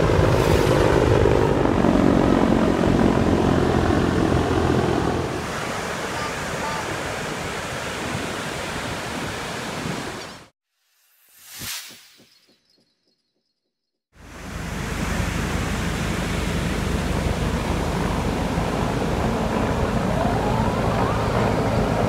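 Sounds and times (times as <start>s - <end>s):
helicopter flying overhead: 0.0s - 7.7s, 14.2s - 22.0s.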